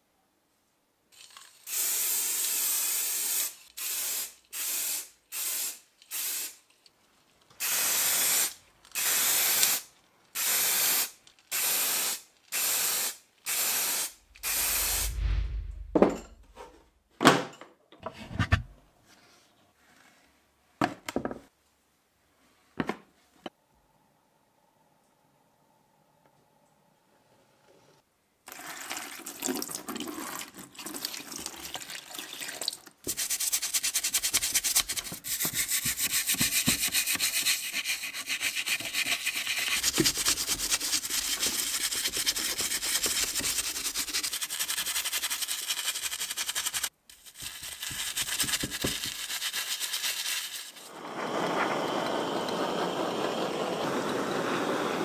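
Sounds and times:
toothbrush scrubbing metal in water: 33.1s - 50.9s.

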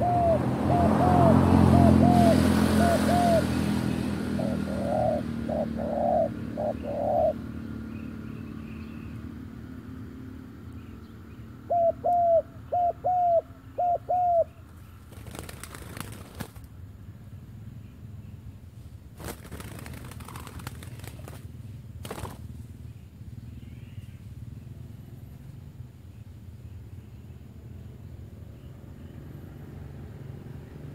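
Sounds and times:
doves cooing: 0.0s - 7.6s, 11.7s - 16.2s
wings flapping: 15.0s - 16.7s, 19.1s - 22.7s.

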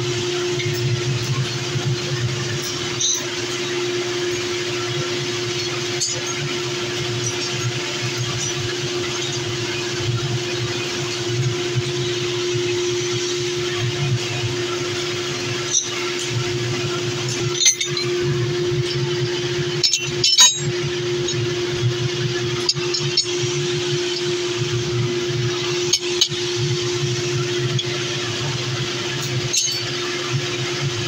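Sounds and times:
steady machine hum: 0.0s - 31.0s
metallic clinks of steel pieces: 17.3s - 18.1s, 19.8s - 21.4s, 29.5s - 29.8s.

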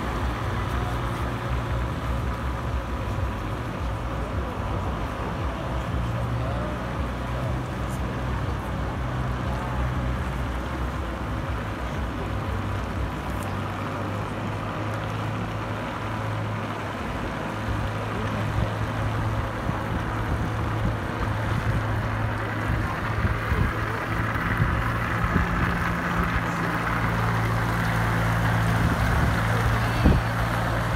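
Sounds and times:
ice resurfacing machine engine hum: 0.0s - 30.9s.

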